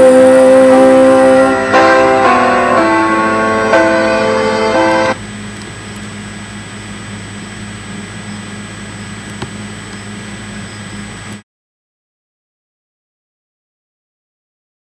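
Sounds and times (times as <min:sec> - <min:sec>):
piano chord: 0:00.0 - 0:05.2.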